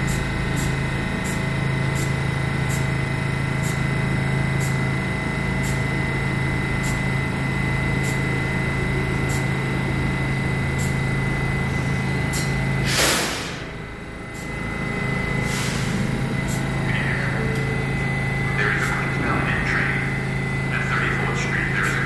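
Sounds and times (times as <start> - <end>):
train electrical hum: 0.0 - 22.0
air hissing burst: 12.4 - 13.8, 15.4 - 16.6.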